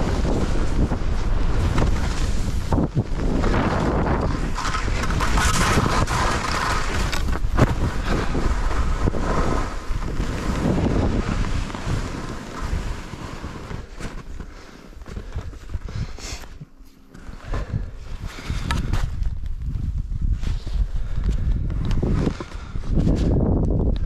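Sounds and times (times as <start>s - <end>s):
wind buffeting microphone: 0.0s - 14.5s, 17.2s - 24.0s
skis scraping on snow: 0.0s - 16.6s.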